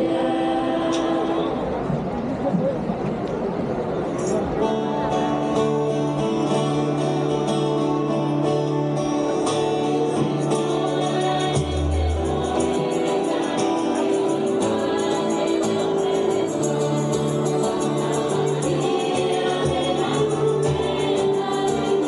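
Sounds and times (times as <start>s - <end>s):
choir singing a hymn: 0.0s - 2.0s, 8.0s - 22.0s.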